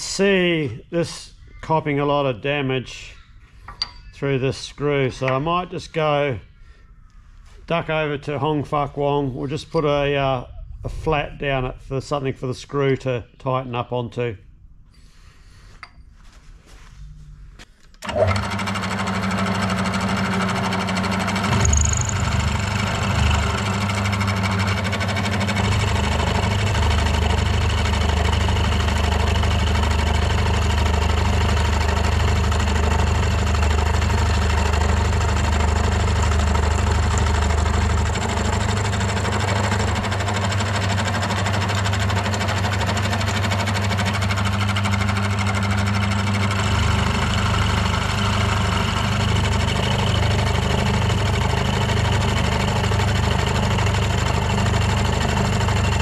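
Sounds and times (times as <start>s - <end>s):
milling machine cutting steel: 18.0s - 56.0s.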